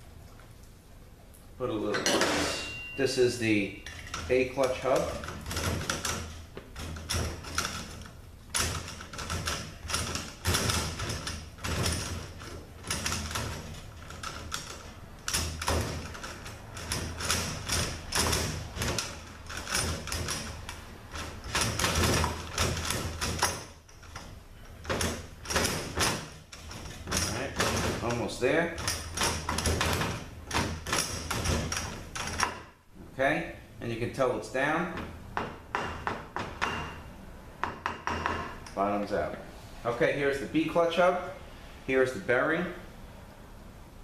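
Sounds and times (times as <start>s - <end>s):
metallic clicking and clattering: 1.9s - 32.7s.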